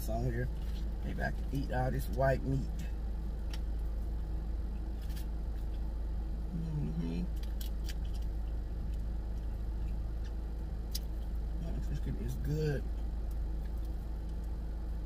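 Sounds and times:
idling car hum: 0.0 - 15.0
chewing crispy food: 0.5 - 2.1, 2.8 - 5.9, 7.2 - 12.0.

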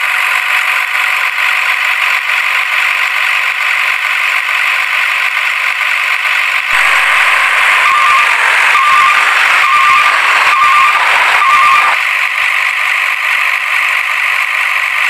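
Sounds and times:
toy truck motor and wheels rattling: 0.0 - 15.0
short beeps: 6.8 - 12.0.

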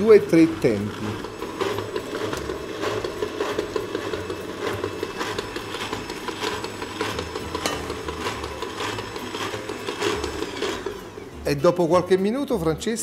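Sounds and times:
stand mixer motor hum: 0.0 - 11.5
beater knocking in bowl: 1.7 - 10.6.

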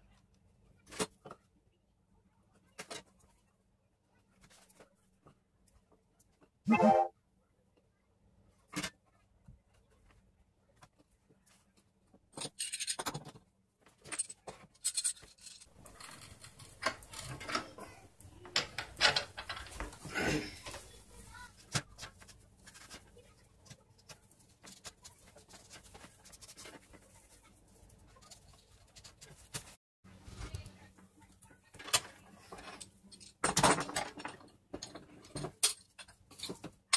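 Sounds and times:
wooden pieces knocking and rubbing: 14.0 - 21.0.

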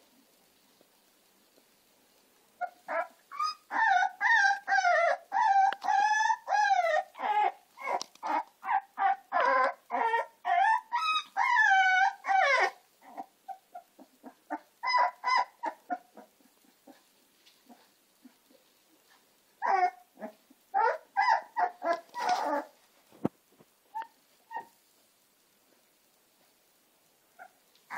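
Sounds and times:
puppies whining and yelping: 2.6 - 17.0, 19.6 - 22.7, 24.0 - 24.8.

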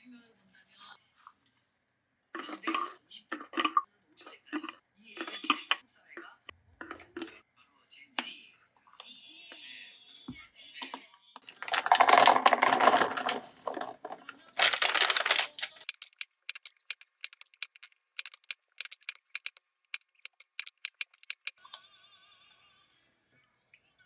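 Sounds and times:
noisy handling sounds: 11.4 - 21.6.

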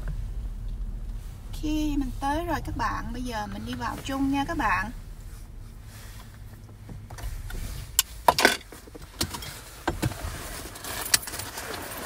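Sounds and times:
low hum: 0.0 - 8.7
seatbelt clicking and rattling: 6.9 - 12.0.

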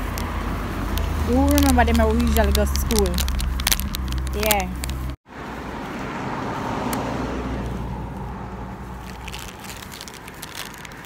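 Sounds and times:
car passing: 0.0 - 11.0
low rumble: 0.1 - 5.2.

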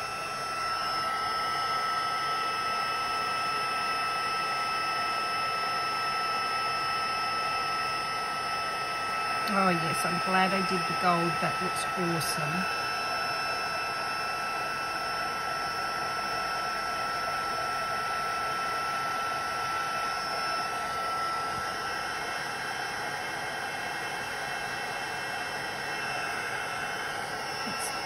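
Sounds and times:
heat tool blowing hot air: 0.0 - 28.0.

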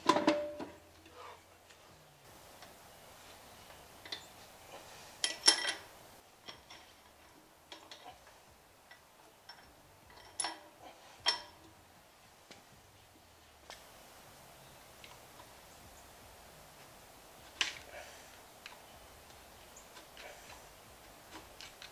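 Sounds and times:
metal parts clicking and clinking: 5.2 - 8.0, 8.9 - 11.6.

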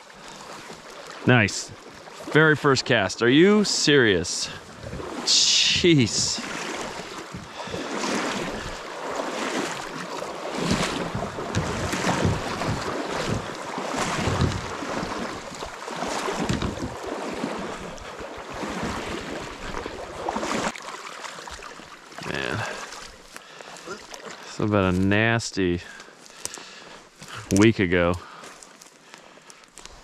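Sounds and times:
fast-flowing creek rushing: 0.0 - 25.0
wind buffeting microphone: 10.6 - 15.2, 16.4 - 17.1.

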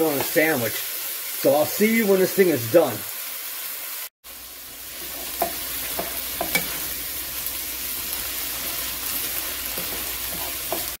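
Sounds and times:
sausage sizzling in a skillet: 0.0 - 11.0
wooden spoon scraping a pan: 5.0 - 7.0, 8.1 - 11.0.

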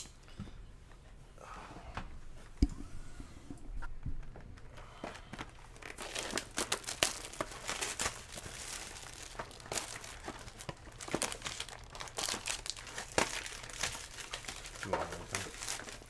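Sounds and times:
plastic wrapping crinkling: 4.2 - 16.0.

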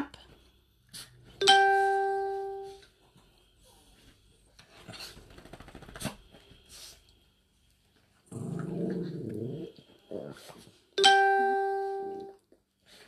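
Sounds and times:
small dog growling call: 8.3 - 10.4.

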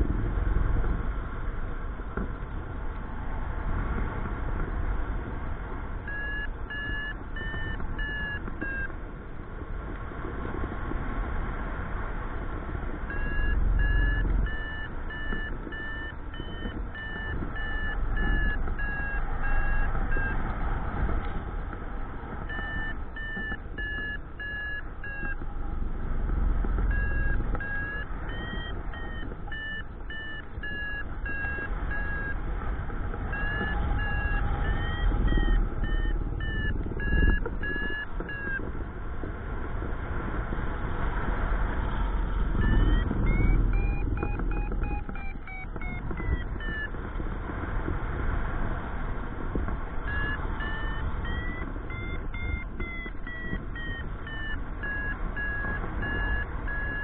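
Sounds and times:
variometer beeping: 6.0 - 9.2, 12.9 - 39.4, 42.2 - 47.2, 49.5 - 57.0.

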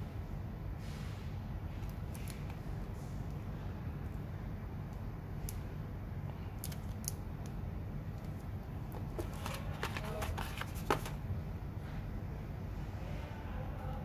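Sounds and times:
steady low hum: 0.0 - 14.0
handling clicks and rustles: 8.1 - 11.2.

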